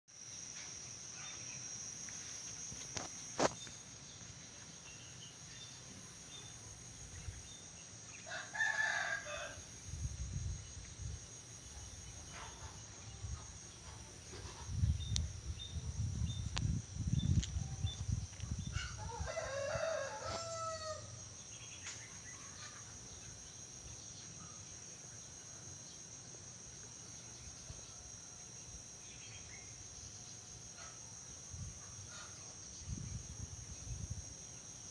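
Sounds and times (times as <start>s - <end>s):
high-pitched insect drone: 0.1s - 34.9s
rooster crowing: 8.2s - 9.7s, 18.8s - 21.2s.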